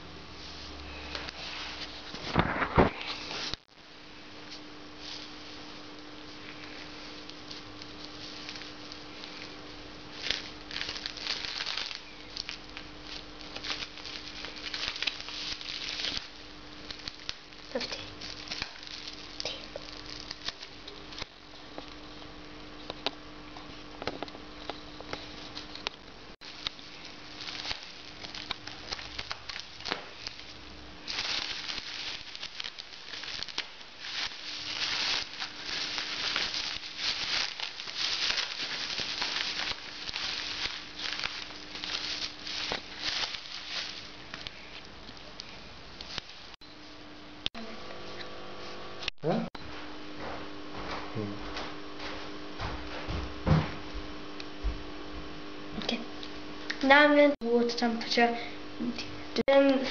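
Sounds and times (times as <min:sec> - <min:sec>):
plastic packing crinkling: 0:04.5 - 0:22.1, 0:25.2 - 0:46.6.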